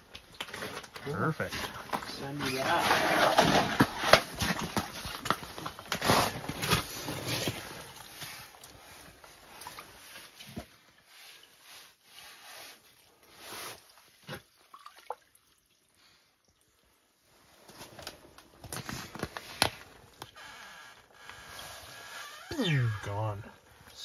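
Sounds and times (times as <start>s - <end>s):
water sloshing and dripping: 12.8s - 17.8s.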